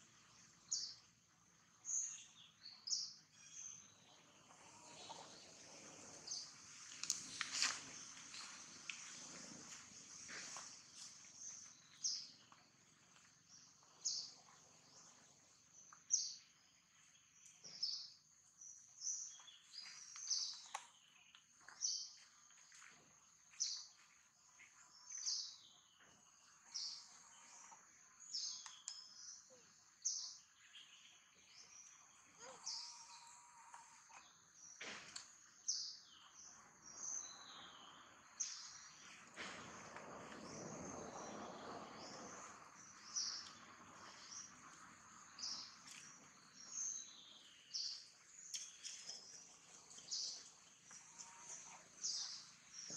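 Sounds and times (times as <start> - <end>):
faint outdoor background: 0.0 - 52.9
bird chirping: 40.4 - 52.9.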